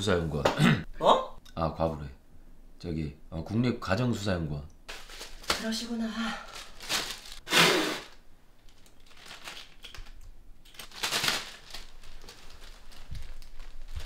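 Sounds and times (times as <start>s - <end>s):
plastic bag crinkling: 4.9s - 7.4s, 8.0s - 14.0s.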